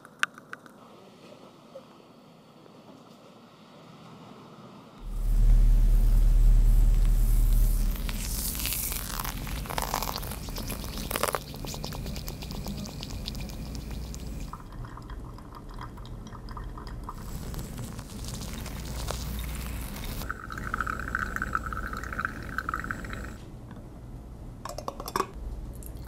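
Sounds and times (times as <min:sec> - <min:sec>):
low rumble: 0:05.0 - 0:10.8
water trickling onto coffee grounds: 0:05.0 - 0:23.4.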